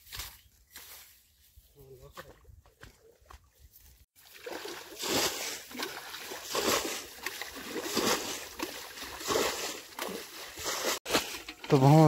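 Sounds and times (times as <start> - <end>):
water splashing from bailing pot: 4.2 - 11.4.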